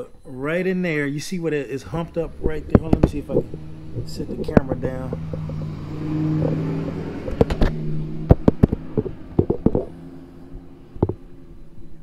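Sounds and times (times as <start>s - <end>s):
steady low hum: 0.0s - 12.0s
camera knocks and scrapes: 4.4s - 5.8s, 7.3s - 9.9s.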